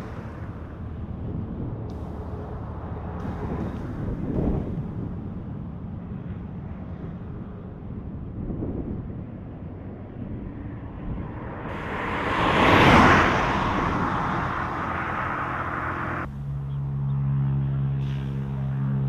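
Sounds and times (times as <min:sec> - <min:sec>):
car passing at speed: 0:10.6 - 0:19.0.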